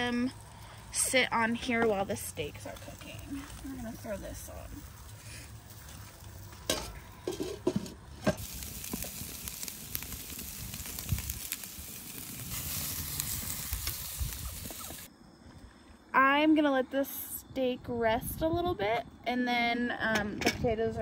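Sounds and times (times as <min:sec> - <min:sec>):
steaks sizzling in a pan: 0:08.4 - 0:15.1.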